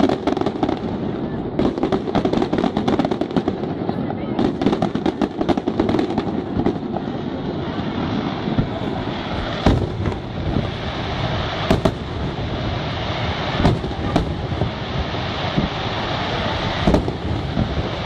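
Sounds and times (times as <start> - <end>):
firework shells bursting: 8.3 - 15.8, 16.7 - 18.0.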